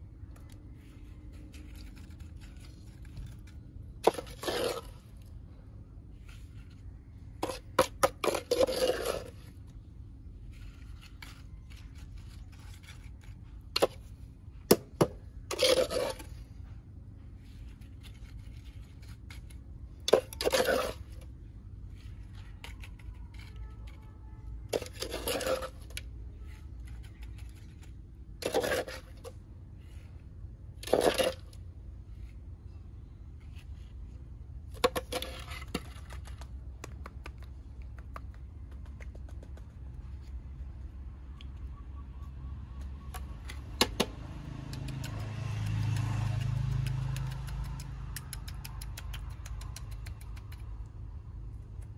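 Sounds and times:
metal trowel scraping wet cement: 0.8 - 5.4, 6.3 - 9.7, 15.0 - 16.6, 17.6 - 21.3, 24.7 - 29.4, 30.7 - 31.6, 34.8 - 36.4.

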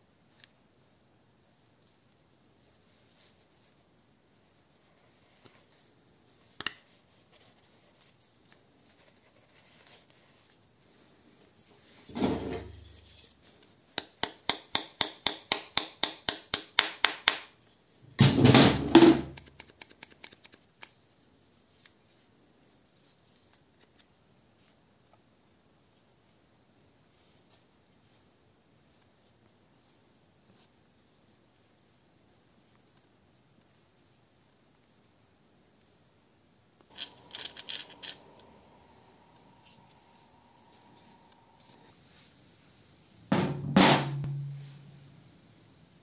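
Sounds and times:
hammer tapping a pin: 14.0 - 17.5.

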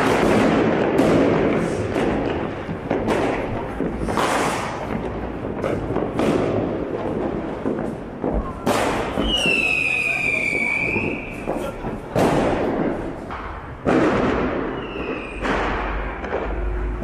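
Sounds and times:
fireworks and firecrackers crackling: 0.0 - 17.0
loud blasts: 0.0 - 17.0.

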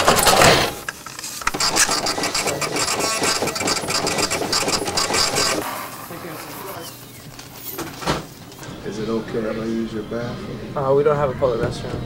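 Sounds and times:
small machine clicking rapidly: 1.4 - 5.6.

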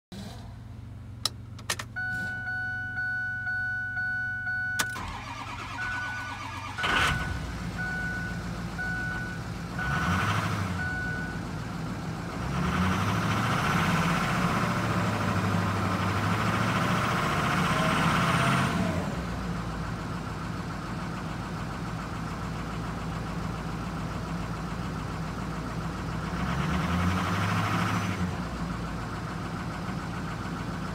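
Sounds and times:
truck engine starting and revving: 0.1 - 30.9
dashboard warning chime: 1.8 - 10.0, 10.8 - 11.4.

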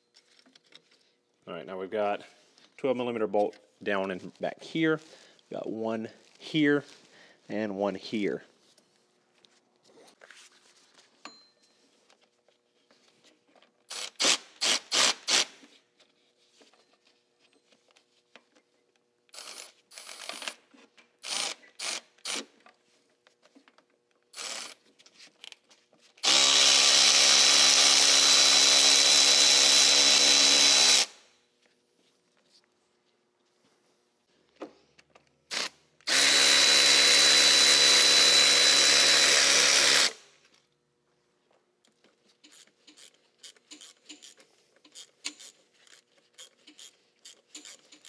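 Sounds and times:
cordless ratchet running: 42.5 - 48.0.

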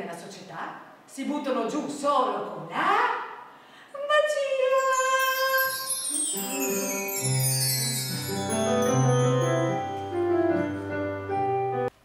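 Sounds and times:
falling high keyboard tones: 4.7 - 11.3
held keyboard chords: 6.3 - 11.9.

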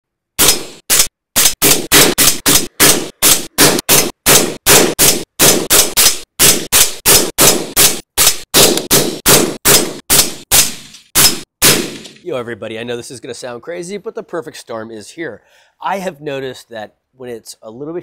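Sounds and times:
suppressed rifle shots: 0.4 - 12.2.

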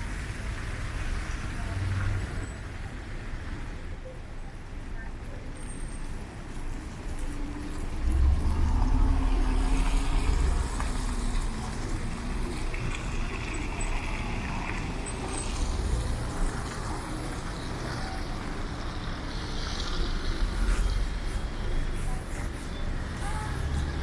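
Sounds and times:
steady traffic noise: 0.0 - 24.0
car passing with engine rumble: 6.6 - 24.0.

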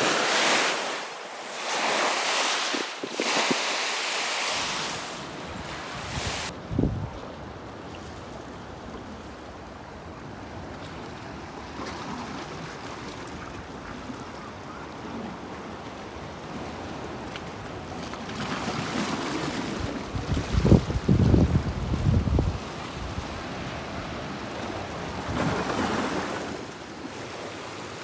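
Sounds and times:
waves washing against rocks: 0.0 - 6.5, 17.8 - 28.0.

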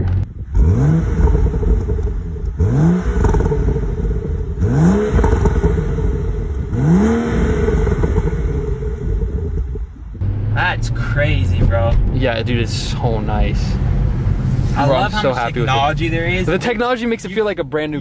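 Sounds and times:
exhaust pops and crackles: 0.0 - 10.3
car engine revving: 0.0 - 17.0.

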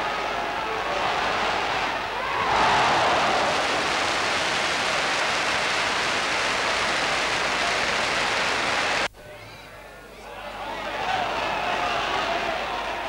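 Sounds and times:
crowd cheering and applauding: 0.0 - 9.1.

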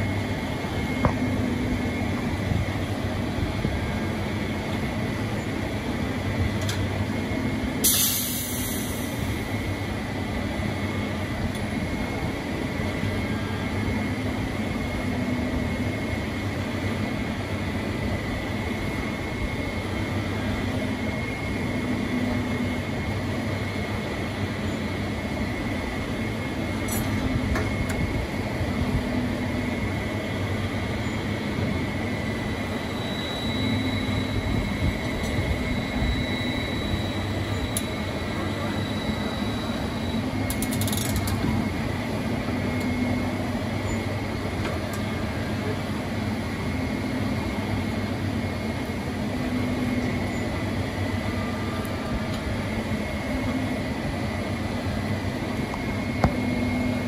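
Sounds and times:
faint steady whine: 0.0 - 57.0
pumpjack mechanical hum: 0.0 - 57.0
brief hiss: 7.8 - 9.1.

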